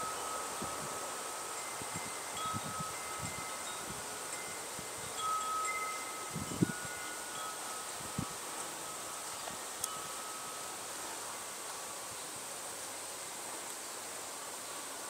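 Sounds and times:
wind chimes ringing: 0:00.0 - 0:10.9.

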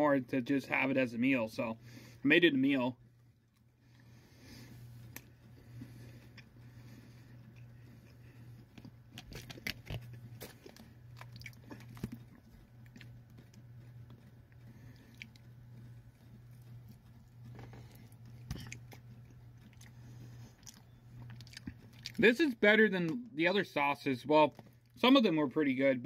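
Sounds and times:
steady low hum: 0:00.0 - 0:26.0
person chewing with mouth clicks: 0:05.0 - 0:22.2.

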